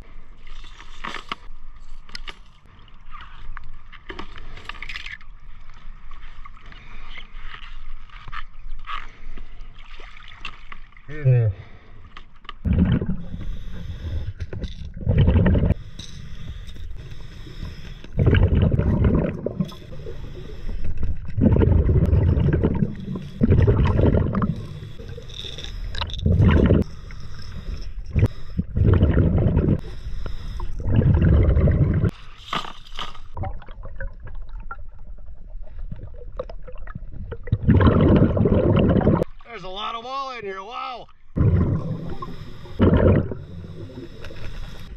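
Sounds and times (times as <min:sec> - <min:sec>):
bubbles rumbling and gurgling: 0:12.6 - 0:15.9, 0:16.9 - 0:32.2, 0:33.2 - 0:39.4, 0:41.3 - 0:44.9
diver breathing through regulator: 0:13.2 - 0:14.6, 0:15.5 - 0:18.9, 0:19.5 - 0:32.4, 0:41.8 - 0:44.9.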